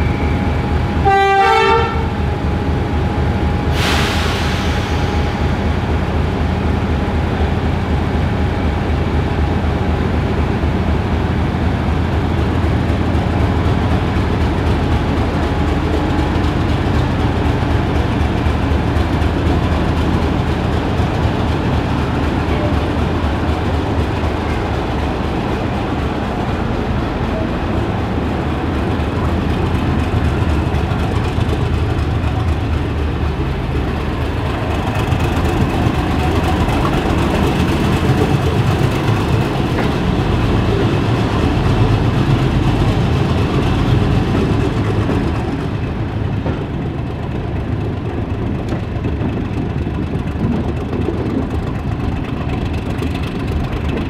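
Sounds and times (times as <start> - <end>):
diesel locomotive engine working: 0.0 - 54.0
coach rolling on rails: 12.5 - 54.0.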